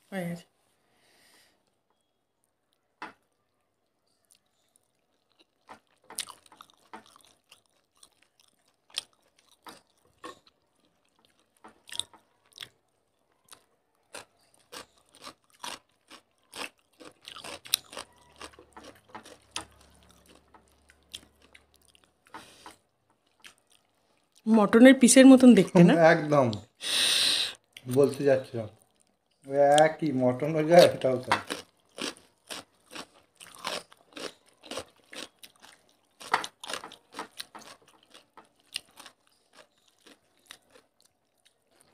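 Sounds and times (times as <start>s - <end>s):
wet chewing and mouth clicks: 4.2s - 24.5s, 28.8s - 30.0s, 30.8s - 41.9s.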